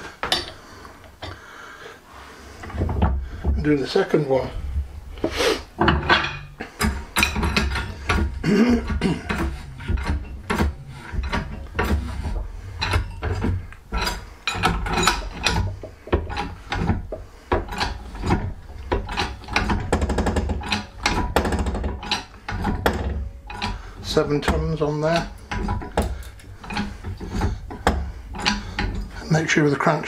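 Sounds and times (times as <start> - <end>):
hydraulic press pump clicking: 6.8 - 29.3
low hum: 7.2 - 19.0.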